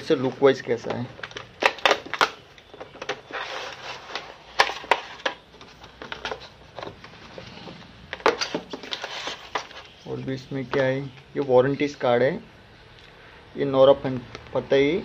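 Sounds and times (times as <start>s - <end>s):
cardboard packaging handled: 0.0s - 11.5s
plastic shrink wrap crinkling: 0.9s - 10.2s.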